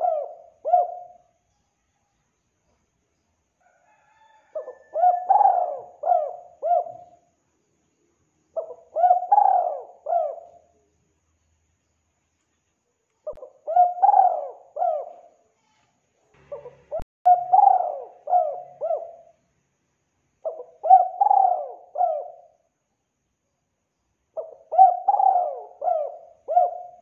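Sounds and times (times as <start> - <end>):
dove cooing: 0.0 - 1.3, 4.2 - 7.2, 8.6 - 10.7, 13.3 - 15.4, 16.4 - 19.4, 20.4 - 22.6, 24.4 - 27.0.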